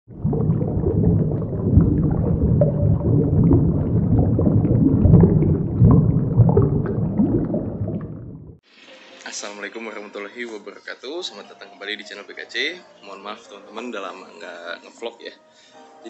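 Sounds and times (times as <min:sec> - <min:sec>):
underwater bubbling and gurgling: 0:00.1 - 0:08.6.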